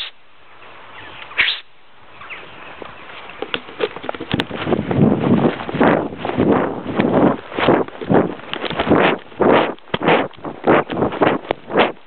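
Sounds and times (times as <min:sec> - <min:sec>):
short sharp hiss: 0:01.4 - 0:01.7
camera rustling and thudding: 0:03.4 - 0:12.0.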